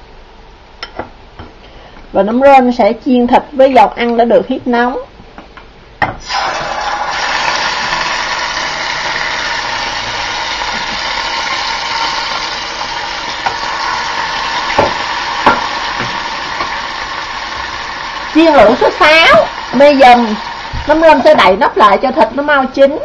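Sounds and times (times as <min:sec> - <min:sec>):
meat sizzling in oil: 0:06.2 - 0:22.2.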